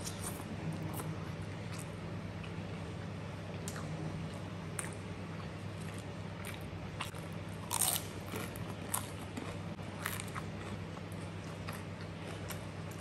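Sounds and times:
chips crunching being chewed: 5.8 - 13.0.

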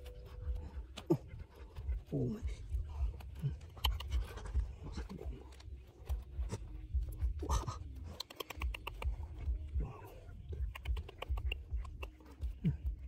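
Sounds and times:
dull low thuds: 0.0 - 8.0, 9.0 - 13.0
scratching and scraping: 0.0 - 13.0
small clicks: 8.1 - 9.2.

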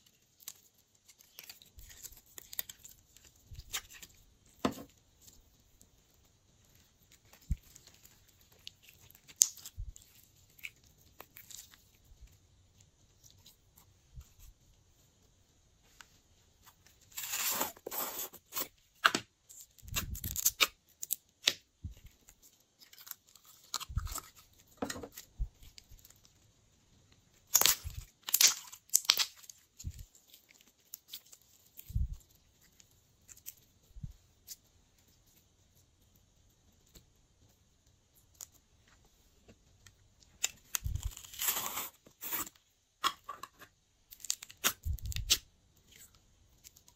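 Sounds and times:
slime squishing and tearing: 17.1 - 18.7, 19.8 - 21.7, 27.4 - 31.9, 40.3 - 42.5, 44.1 - 46.9.

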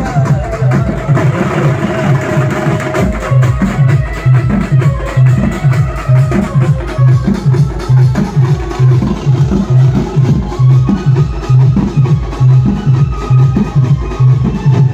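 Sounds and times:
band playing dance music: 0.0 - 14.9
heavy drum beat: 0.0 - 14.9.

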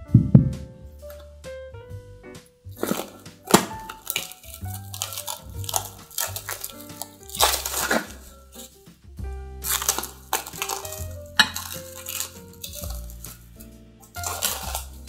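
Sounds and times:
soft background music: 0.0 - 15.0
cling film crinkling: 2.7 - 9.0, 9.6 - 15.0.

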